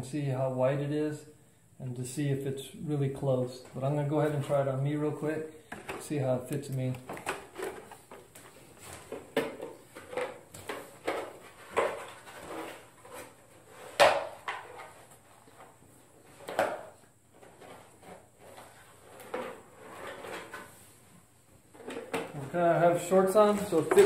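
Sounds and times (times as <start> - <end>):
plastic armor knocking and rustling: 5.7 - 15.7, 16.3 - 20.8, 23.3 - 24.0.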